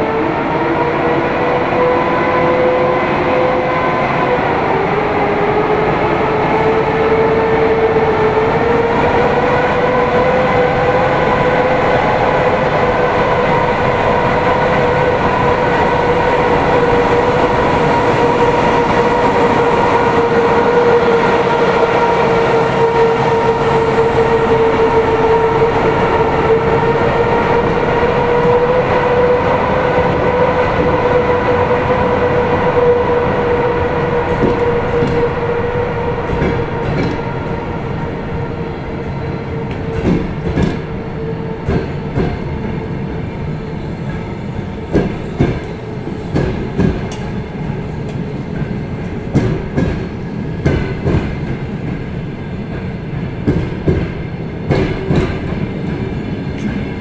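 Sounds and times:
electric locomotive whine: 0.0s - 57.0s
train wheels clicking over rail joints: 39.7s - 40.9s, 52.7s - 56.9s.

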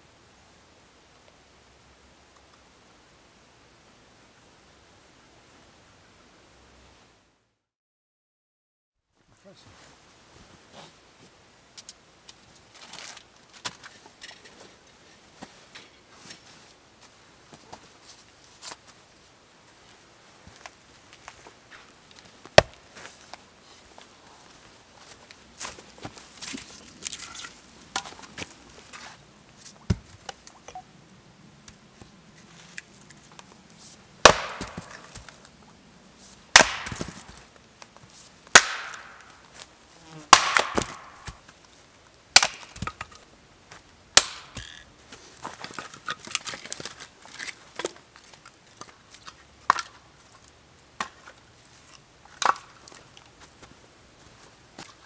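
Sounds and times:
axe chopping firewood: 22.6s - 22.8s, 34.2s - 35.3s, 36.5s - 37.4s, 38.5s - 39.3s, 40.3s - 41.4s, 42.4s - 43.2s, 44.2s - 44.7s, 52.4s - 52.8s.

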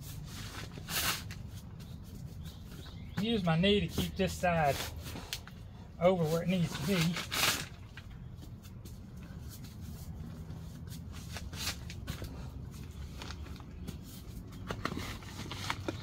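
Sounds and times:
plastic air mattress crinkling: 10.8s - 16.0s.

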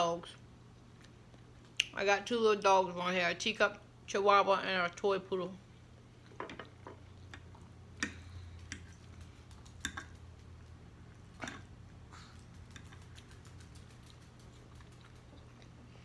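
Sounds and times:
low steady hum: 0.0s - 16.0s
chewing and mouth noises: 12.0s - 16.0s.

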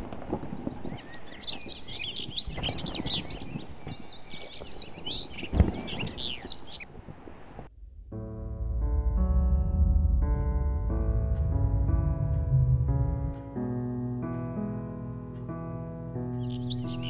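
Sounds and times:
songbirds chirping and twittering: 0.1s - 7.0s, 15.3s - 17.0s
low rumble: 7.7s - 14.8s.

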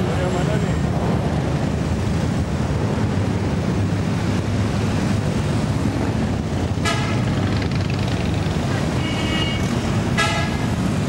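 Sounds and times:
wind buffeting microphone: 0.0s - 9.0s
motorcycles riding past: 4.1s - 11.0s.

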